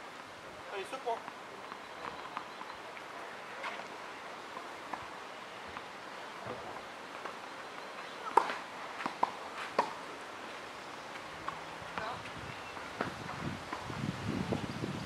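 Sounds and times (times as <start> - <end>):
tennis ball struck by racket: 8.2 - 10.0
faint ball taps: 8.3 - 10.0.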